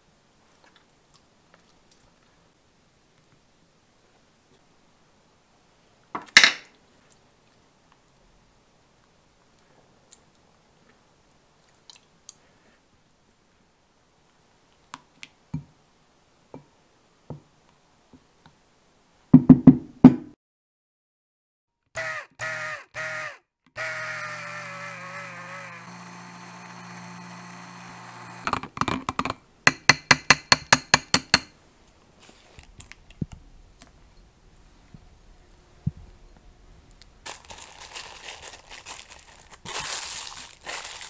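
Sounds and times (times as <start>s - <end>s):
hand blender running: 22.0s - 28.6s.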